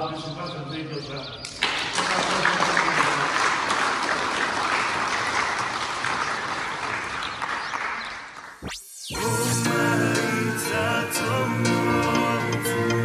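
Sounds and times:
audience applauding: 1.6 - 8.6
sweeping sound: 8.6 - 11.9
music: 9.1 - 13.0.

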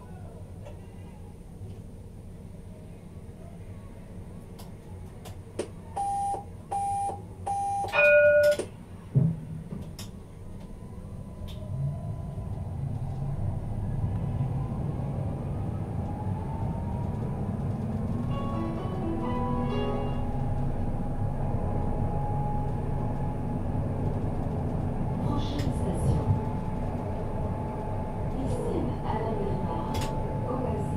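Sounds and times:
tram rumble: 0.0 - 30.9
door warning beeps: 6.0 - 8.7.

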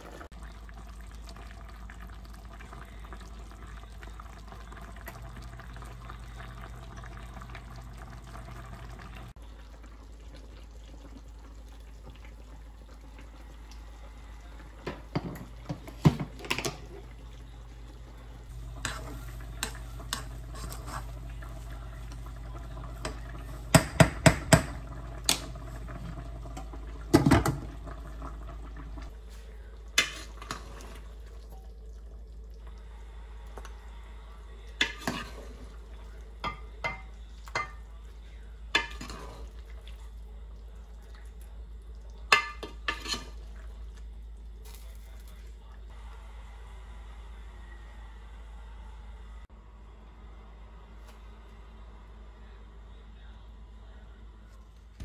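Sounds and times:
steady low hum: 2.8 - 55.0
utensils knocking against pots: 23.7 - 24.8, 42.3 - 43.3.

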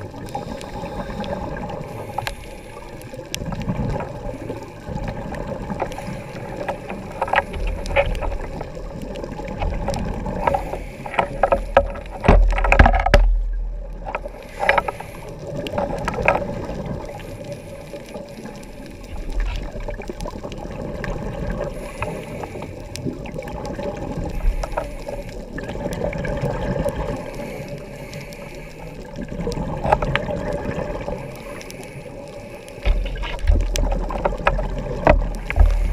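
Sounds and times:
exhaled bubbles rumbling: 0.0 - 28.1, 28.9 - 35.9
diver regulator breathing: 0.2 - 3.4, 5.7 - 8.8, 9.6 - 12.8, 14.1 - 19.8, 21.4 - 23.1, 24.2 - 25.9, 26.6 - 30.0, 30.8 - 35.9.

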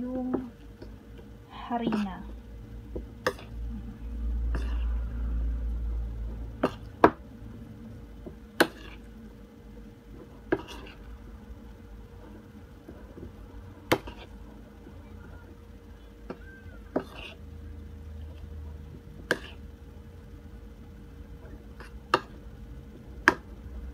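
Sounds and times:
spoon stirring thick mash: 4.4 - 5.1, 8.2 - 9.2, 10.0 - 11.2, 12.2 - 15.6, 16.2 - 17.5, 18.2 - 19.7, 21.3 - 22.4.

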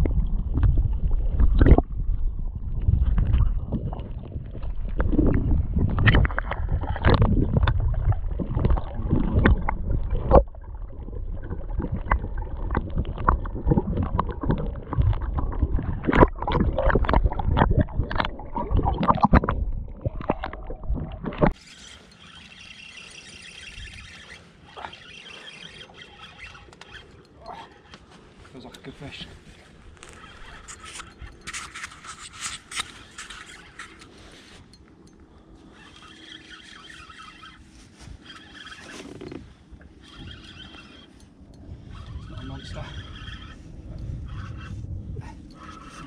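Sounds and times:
underwater water sloshing: 0.0 - 46.0
sharp knocks underwater: 2.8 - 10.6, 11.5 - 21.6.

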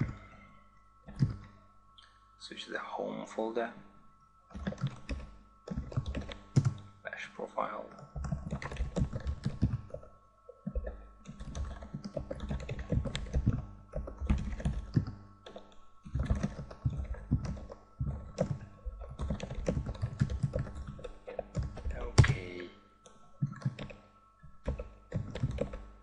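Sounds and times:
computer keyboard typing: 1.1 - 1.5, 4.5 - 6.9, 7.9 - 22.7, 23.4 - 24.0, 24.6 - 26.0.

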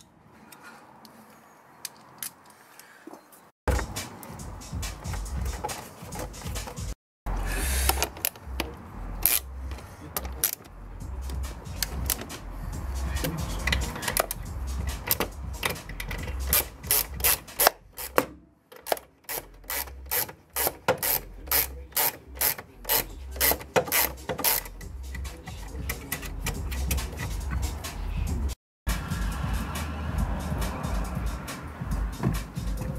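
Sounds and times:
hand ratchet clicking: 7.8 - 12.4, 13.1 - 27.7.

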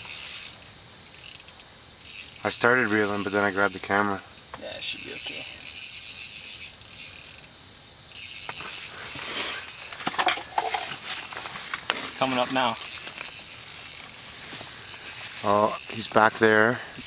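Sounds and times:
fishing reel clicking and ratcheting: 0.0 - 17.0.

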